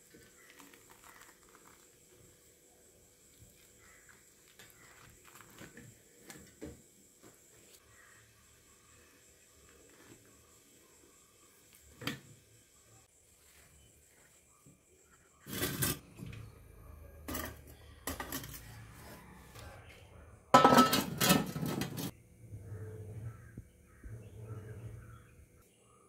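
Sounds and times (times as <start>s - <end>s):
metal pot and lid clanking: 17.2s - 18.6s, 20.5s - 22.1s.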